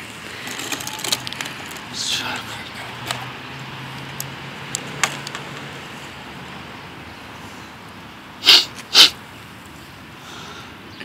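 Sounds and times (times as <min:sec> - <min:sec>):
person sniffing sharply: 0:08.4 - 0:09.2.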